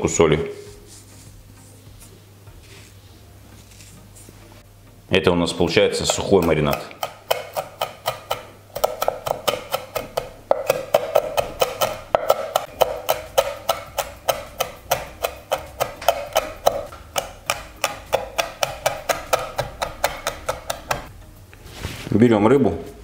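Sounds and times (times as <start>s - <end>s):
knife chopping on wooden board: 6.0s - 21.1s.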